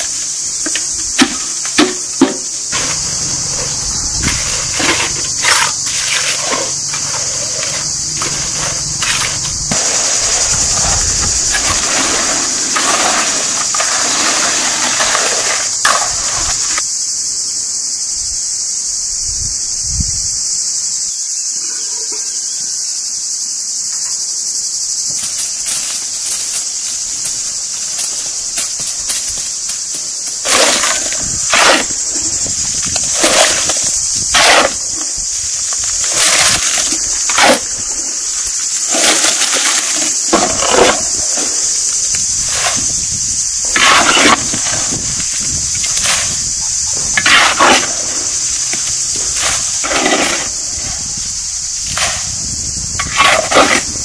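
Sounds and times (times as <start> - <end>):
shovel scraping in wheelbarrow: 0.0 - 16.8, 29.9 - 37.8, 38.6 - 41.6, 42.4 - 43.0, 43.6 - 46.5, 47.1 - 51.0, 53.0 - 54.0
high-pitched insect drone: 0.0 - 54.0
trowel spreading wet concrete: 4.2 - 10.3, 11.5 - 16.8, 30.4 - 32.0, 33.1 - 34.8, 36.1 - 37.6, 43.7 - 44.9, 47.2 - 48.0, 49.4 - 50.5, 53.0 - 53.9.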